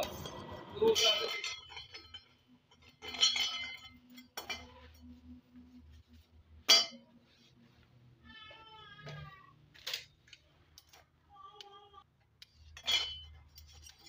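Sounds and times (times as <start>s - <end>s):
sheet metal clinking: 0.0s - 5.1s.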